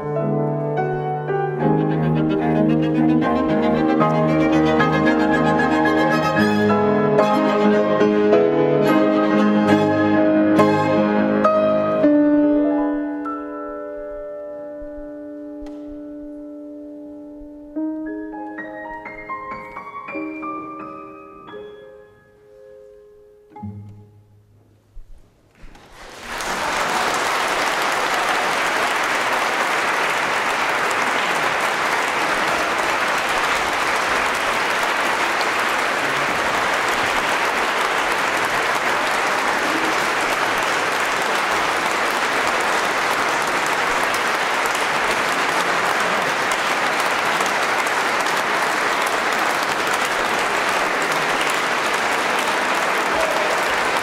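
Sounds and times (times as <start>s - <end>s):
audience applauding: 2.2s - 8.2s, 25.7s - 54.0s.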